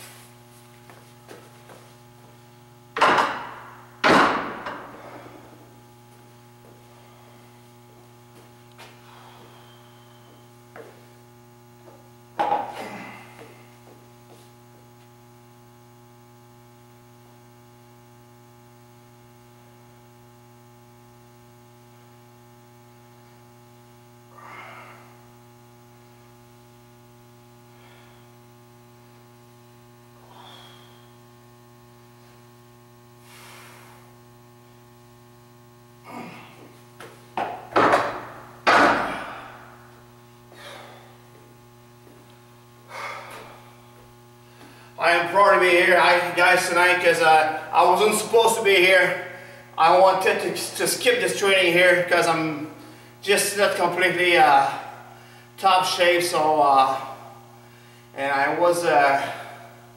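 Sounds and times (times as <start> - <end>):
electrical mains hum: 0.0 - 59.9.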